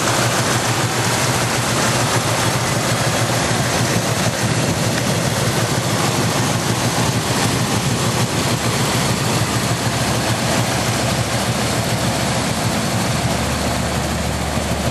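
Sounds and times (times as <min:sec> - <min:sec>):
car engine idling: 0:00.0 - 0:14.9.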